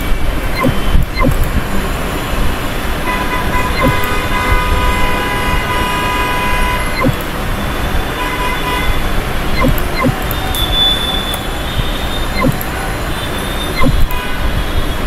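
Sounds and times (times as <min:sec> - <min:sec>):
sharp clicks: 0:00.4 - 0:01.7, 0:03.8 - 0:04.2, 0:07.0 - 0:07.4, 0:09.6 - 0:11.5, 0:12.4 - 0:12.8, 0:13.8 - 0:14.2
horn tone: 0:03.1 - 0:07.2.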